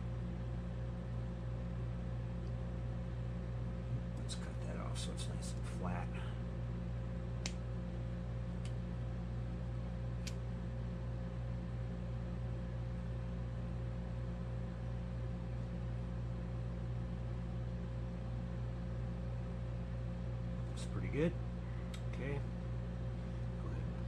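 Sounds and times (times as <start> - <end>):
low background hum: 0.0 - 24.0.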